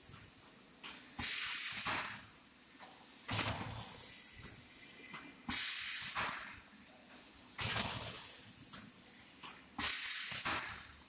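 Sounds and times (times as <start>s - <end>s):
compressed air hisses: 0.0s - 2.2s, 3.3s - 4.8s, 5.5s - 6.6s, 7.6s - 10.8s.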